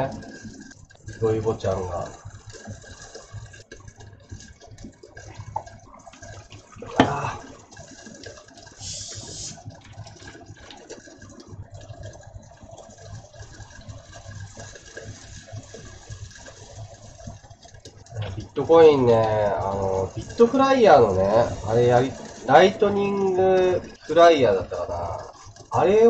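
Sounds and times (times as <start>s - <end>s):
food sizzling under lid: 5.3s - 7.8s, 8.7s - 10.0s
short hiss: 8.8s - 9.6s.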